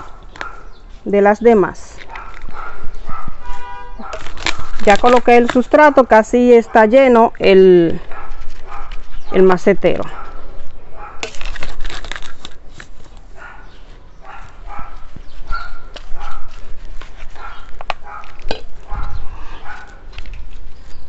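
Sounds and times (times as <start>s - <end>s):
dog barking: 0.0s - 0.8s, 2.1s - 4.4s, 8.1s - 9.0s, 10.1s - 11.2s, 13.4s - 16.6s, 17.4s - 20.0s.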